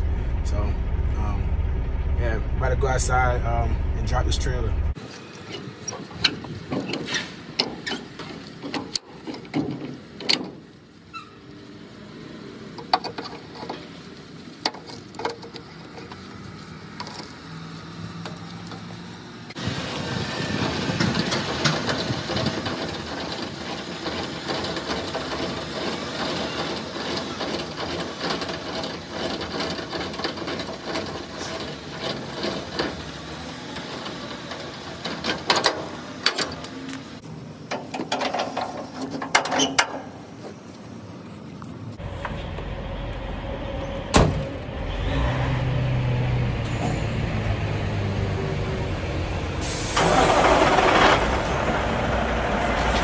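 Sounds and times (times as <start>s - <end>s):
landing gear crank rattling: 5.3s - 11.3s, 18.2s - 40.2s
clicks and knocks of couplings: 33.8s - 37.1s, 37.7s - 40.5s.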